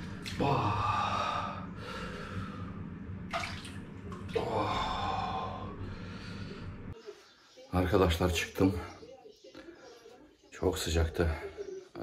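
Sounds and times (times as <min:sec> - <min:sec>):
steady low hum: 0:00.0 - 0:07.3
water sloshing in a pool: 0:03.3 - 0:04.5.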